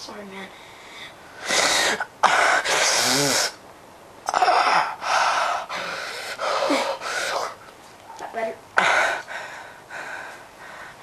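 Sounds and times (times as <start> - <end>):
person breathing hard: 5.0 - 7.6, 8.8 - 11.0.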